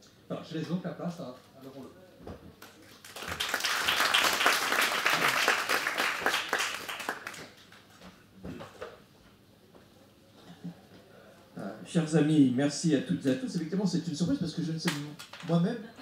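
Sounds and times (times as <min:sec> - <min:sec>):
audience applause: 0:03.0 - 0:07.8.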